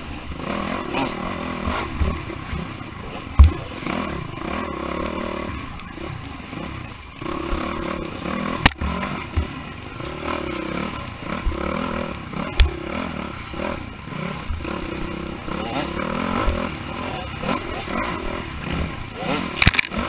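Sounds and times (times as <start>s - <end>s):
dirt bike engine revving: 0.0s - 20.0s
bike knocking on bumps: 3.3s - 5.2s, 7.3s - 9.6s, 10.2s - 20.0s.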